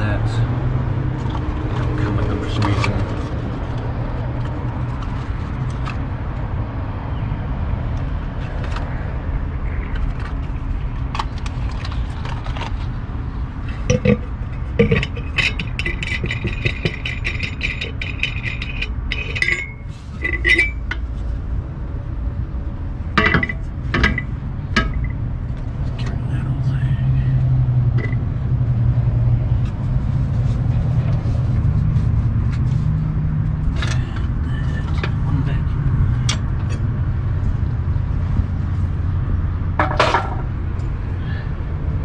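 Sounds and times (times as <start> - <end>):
steady low rumble: 9.0 - 42.0
metal clinking and scraping: 13.6 - 21.3, 23.2 - 25.2, 27.9 - 28.2, 39.8 - 40.5.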